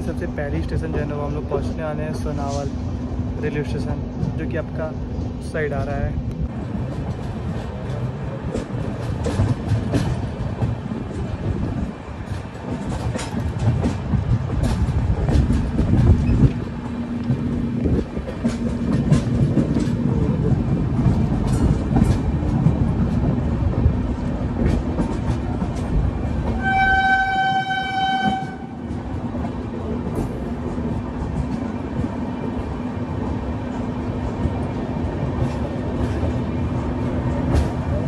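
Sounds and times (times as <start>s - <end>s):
train rumbling on rails: 0.0s - 38.0s
train horn: 26.5s - 28.8s.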